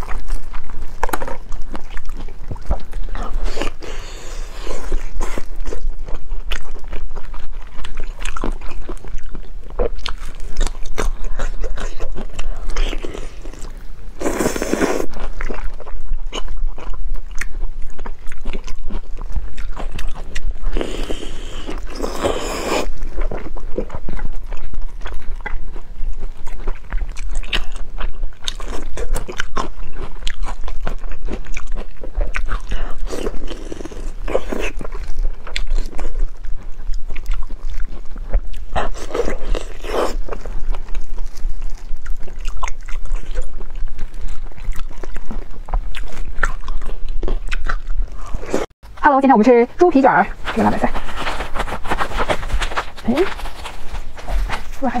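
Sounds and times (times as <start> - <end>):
wet chewing and smacking: 0.0 - 55.0.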